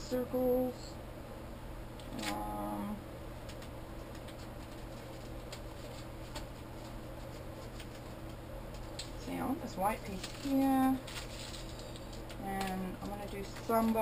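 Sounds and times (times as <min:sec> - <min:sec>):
paper handling: 0:03.5 - 0:09.2, 0:09.9 - 0:14.0.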